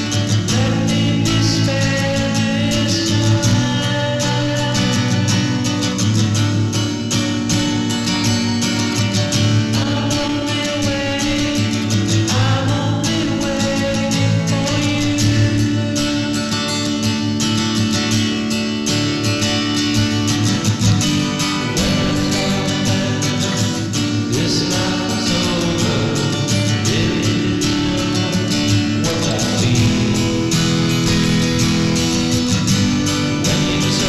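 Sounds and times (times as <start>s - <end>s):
person singing: 0.0s - 5.8s, 9.6s - 17.0s, 21.1s - 34.0s
guitar accompaniment: 0.0s - 34.0s.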